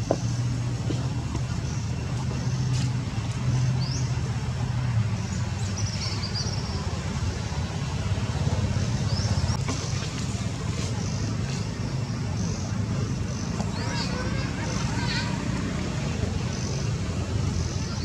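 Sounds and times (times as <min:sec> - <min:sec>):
low engine rumble: 0:00.0 - 0:18.0.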